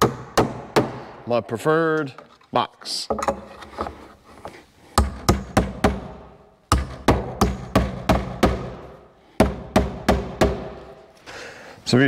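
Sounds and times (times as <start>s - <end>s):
hammer driving nails into wood: 0.0s - 1.1s, 4.9s - 11.0s.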